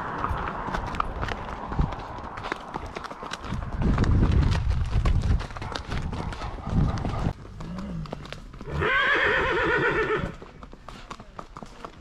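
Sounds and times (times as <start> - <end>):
horse hooves clopping: 0.0 - 12.0
horse whinnying: 7.6 - 10.4.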